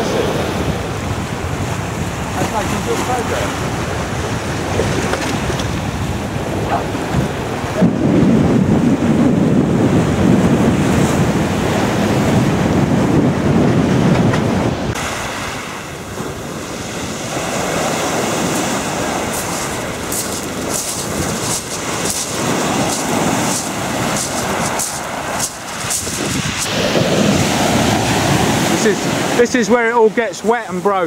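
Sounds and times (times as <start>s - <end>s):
hissing wash of breaking waves: 0.0s - 8.9s, 14.9s - 31.0s
sea surf: 0.0s - 31.0s
wind rumbling on microphone: 0.0s - 31.0s.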